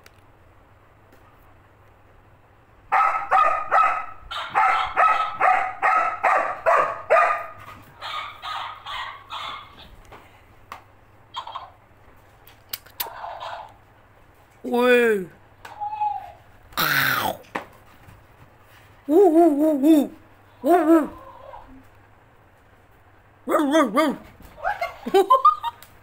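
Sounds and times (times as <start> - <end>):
dog barking rapidly: 2.9 - 9.9, 13.1 - 13.7.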